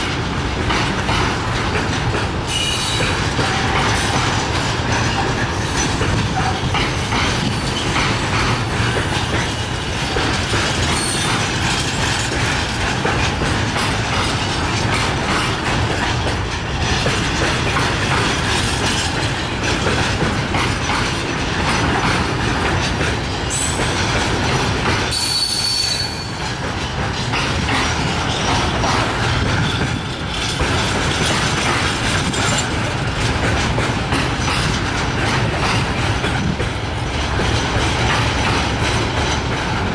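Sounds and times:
freight train wheels on rail: 0.0 - 39.9
high wheel squeal: 25.1 - 26.4.

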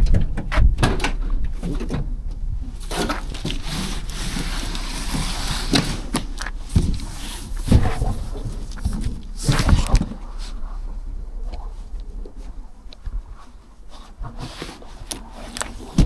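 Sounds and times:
knocks and thumps: 0.0 - 13.3
box scraping across van floor: 2.7 - 11.0.

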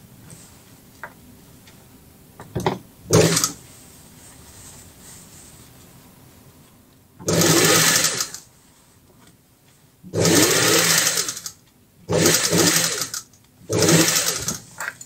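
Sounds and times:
sewing machine stitching rattle: 3.1 - 3.6, 7.2 - 8.4, 10.2 - 15.0.

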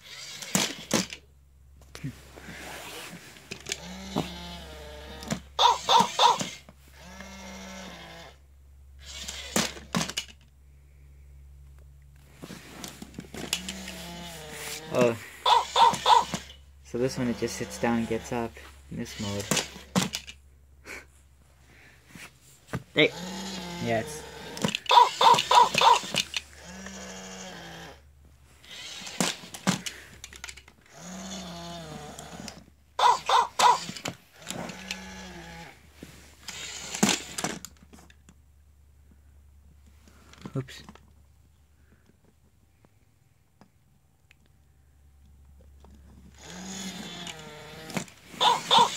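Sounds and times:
small electric motors whirring: 0.0 - 1.1, 2.5 - 8.4, 9.0 - 10.3, 13.3 - 20.4, 23.0 - 28.0, 28.6 - 35.8, 36.4 - 37.7, 46.3 - 48.9.

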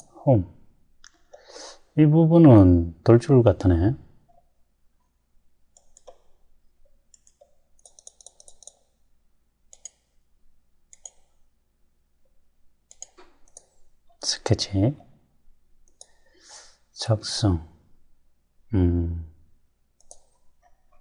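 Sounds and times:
computer mouse clicks: 5.7 - 9.0, 9.7 - 10.2, 10.9 - 11.4, 12.9 - 13.9, 15.8 - 16.4, 20.0 - 21.0.

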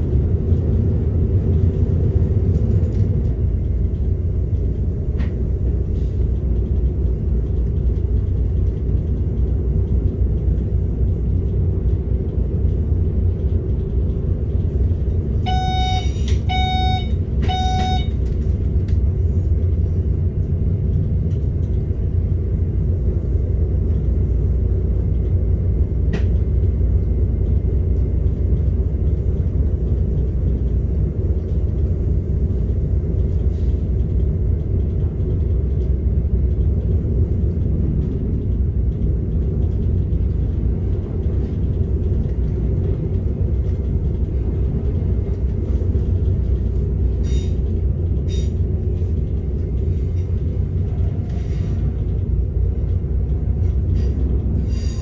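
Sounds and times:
electric train rumbling: 0.0 - 55.0
short electronic beeps: 15.5 - 18.2.

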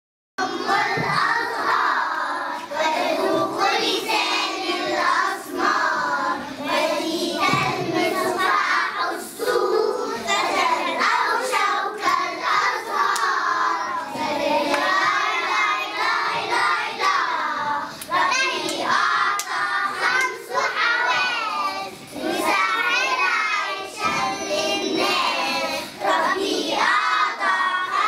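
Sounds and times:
children singing in unison: 0.4 - 28.0
hand claps: 13.1 - 13.4, 14.7 - 14.9, 18.0 - 20.4.

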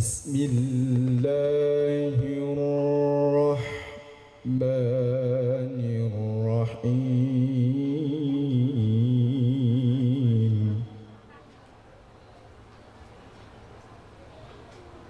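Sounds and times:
man reciting melodically: 0.0 - 11.2.

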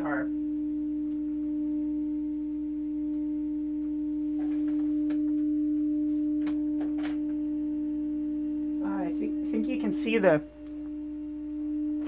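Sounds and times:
steady low test tone: 0.0 - 12.0.

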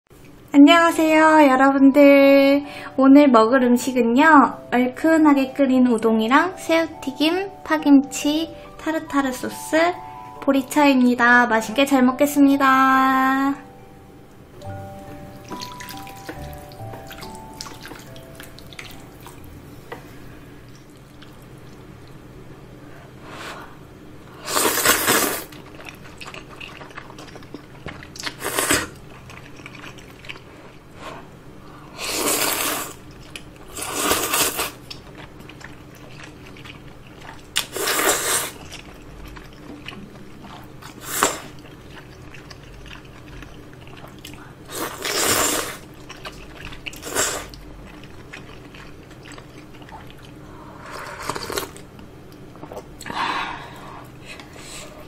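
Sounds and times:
quiet chewing: 20.6 - 22.2, 25.1 - 30.9, 32.5 - 55.0
loud noodle slurping: 24.4 - 25.6, 28.4 - 29.0, 32.0 - 33.0, 33.7 - 34.8, 37.6 - 38.7, 44.7 - 45.9.

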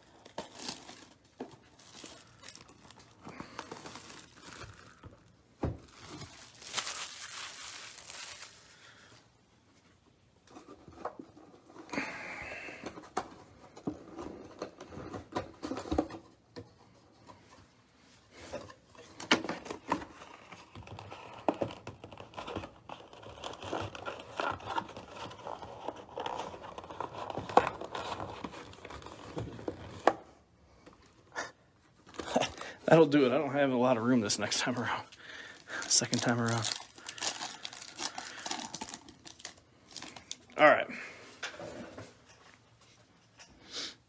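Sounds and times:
plastic shrink-wrap tearing: 0.0 - 8.9, 34.3 - 40.6.

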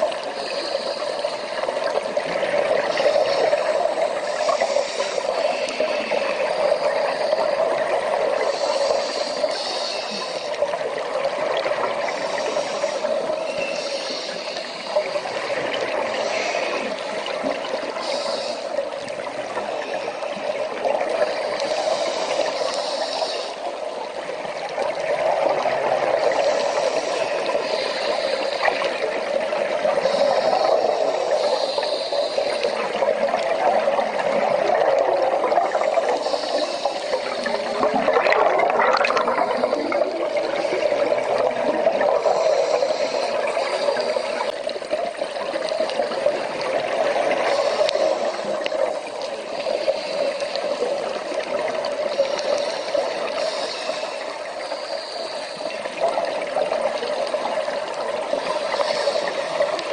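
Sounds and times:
underwater rushing and bubbling water: 0.0 - 59.9
short hissing bursts: 18.0 - 18.8, 21.3 - 23.7, 30.0 - 33.4, 35.7 - 37.8.

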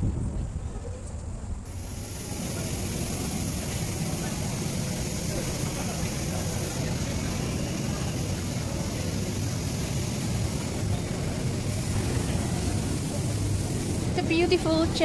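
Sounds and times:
low rumble with hiss: 0.0 - 15.0.

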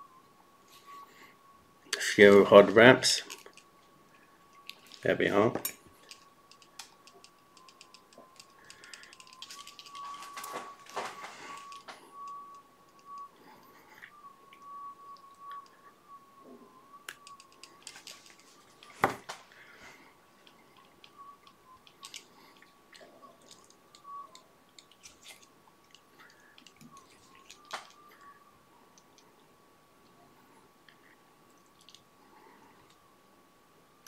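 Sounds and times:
faint high whine: 0.0 - 34.0
clicks and rustles of tools: 4.6 - 13.3, 17.1 - 19.5.

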